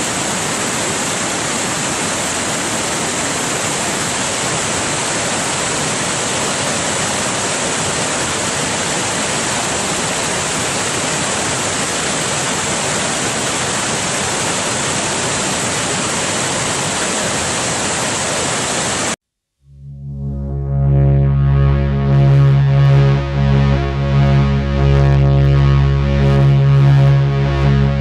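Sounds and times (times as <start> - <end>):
waterfall rushing: 0.0 - 19.2.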